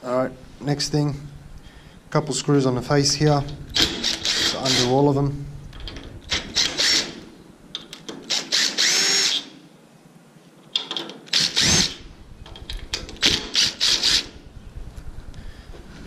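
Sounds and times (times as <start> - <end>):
cordless driver motor whine: 11.4 - 15.4.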